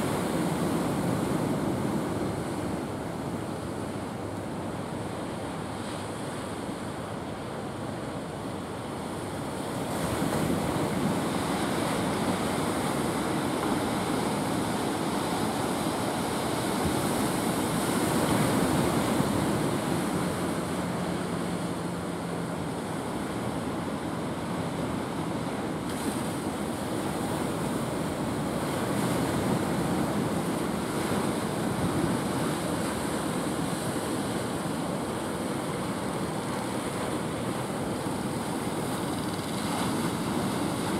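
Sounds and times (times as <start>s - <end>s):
ocean surf breaking: 8.8s - 40.9s.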